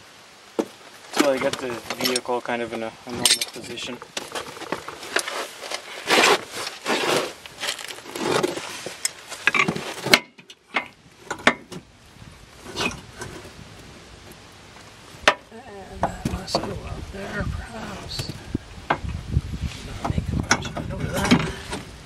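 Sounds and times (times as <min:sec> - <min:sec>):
metal parts scraping and clunking: 0:01.2 - 0:02.4, 0:03.1 - 0:11.8, 0:12.6 - 0:13.6.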